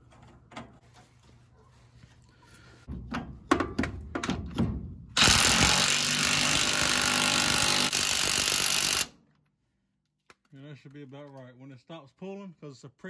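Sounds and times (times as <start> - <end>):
impact wrench running: 5.2 - 9.1.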